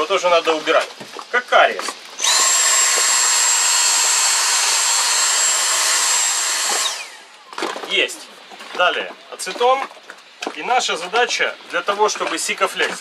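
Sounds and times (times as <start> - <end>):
handheld vacuum cleaner whining: 2.2 - 7.4.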